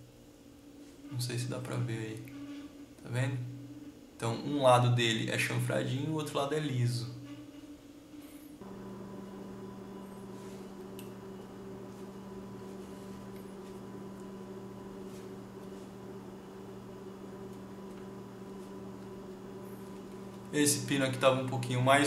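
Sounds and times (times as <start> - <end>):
steady low hum: 0.0 - 22.0
faint buzz: 6.9 - 22.0.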